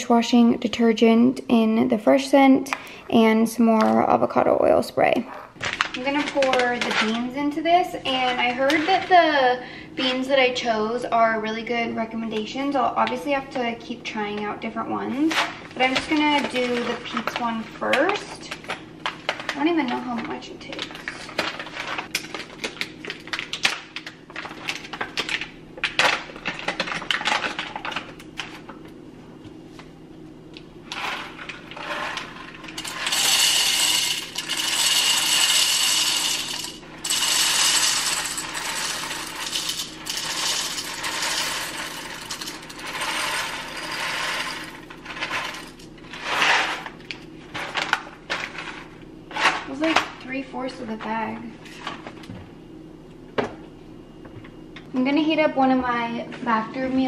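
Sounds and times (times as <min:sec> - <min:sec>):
coffee beans pouring: 0:31.0 - 0:46.5.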